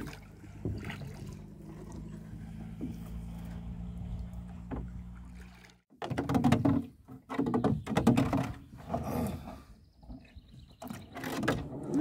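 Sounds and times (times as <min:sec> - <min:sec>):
oars knocking against hull: 0:00.0 - 0:09.1.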